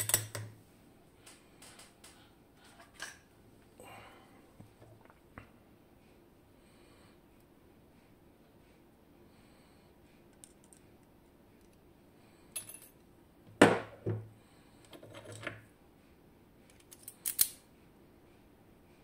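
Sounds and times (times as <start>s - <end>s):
small metal clicks: 16.7s - 17.6s.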